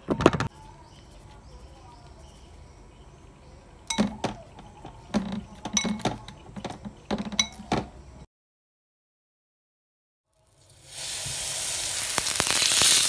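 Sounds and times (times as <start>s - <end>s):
plastic spoon knocking glass bowl: 3.9s - 7.9s.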